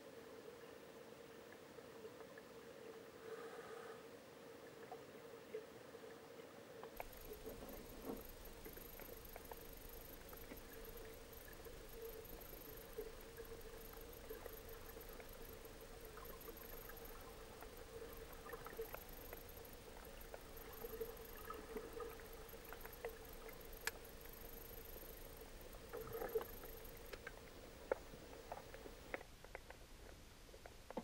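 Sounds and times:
faint high whine: 0.0s - 31.0s
low underwater hum: 0.0s - 31.0s
scattered clicks and crackles: 6.8s - 31.0s.

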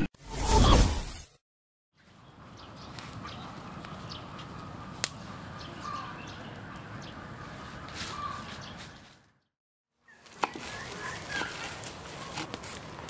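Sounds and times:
birds calling: 5.2s - 9.2s, 10.0s - 12.5s.

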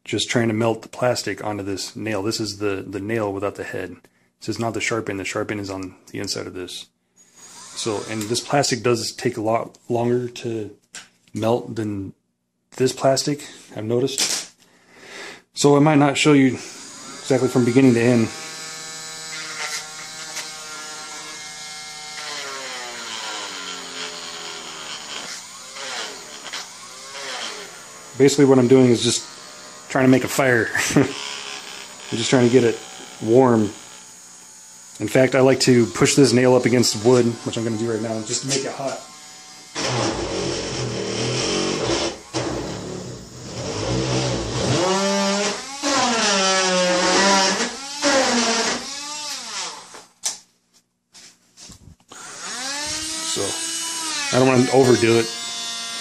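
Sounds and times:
rotary tool whining: 7.3s - 8.5s, 16.7s - 50.0s, 52.1s - 56.0s.

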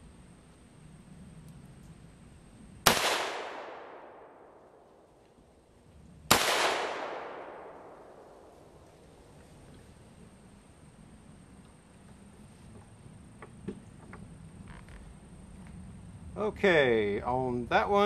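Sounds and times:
rifle shots with echo: 2.8s - 5.0s, 6.3s - 8.9s.

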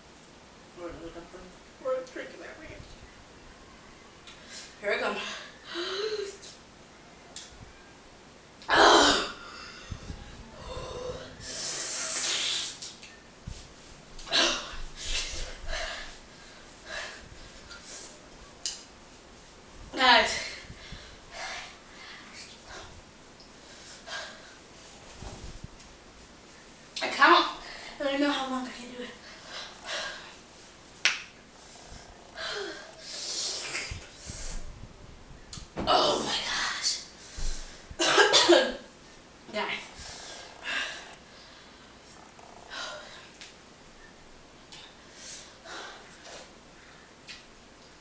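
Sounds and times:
woman breathing hard: 9.4s - 12.3s, 14.3s - 17.8s, 20.4s - 23.0s, 31.6s - 33.4s
woman breathing hard and gasping: 9.4s - 12.4s, 31.8s - 33.3s.

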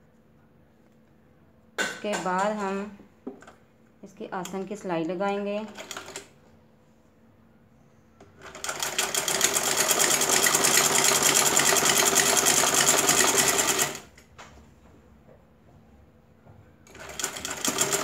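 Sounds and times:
sewing machine stitching: 8.4s - 14.1s, 16.9s - 18.0s.

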